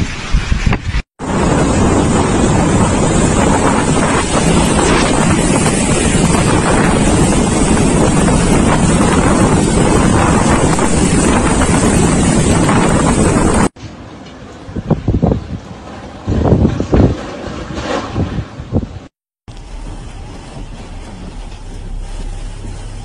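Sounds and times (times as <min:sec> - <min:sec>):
wind buffeting microphone: 0:00.0 - 0:13.8, 0:14.6 - 0:23.0
heavy rain: 0:01.2 - 0:13.8, 0:19.5 - 0:23.0.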